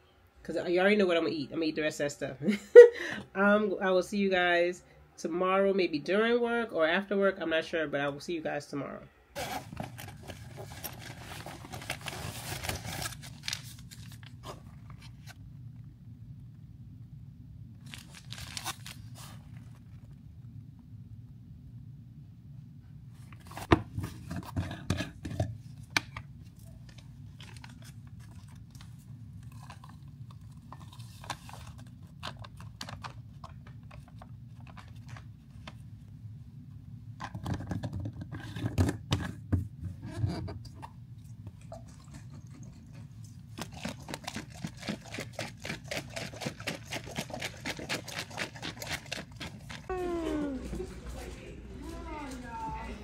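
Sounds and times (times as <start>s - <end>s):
plastic packet crinkling and tearing: 9.4s - 15.3s, 17.8s - 19.4s, 26.8s - 35.3s, 43.6s - 49.9s
jar being shaken rattling: 41.7s - 49.9s.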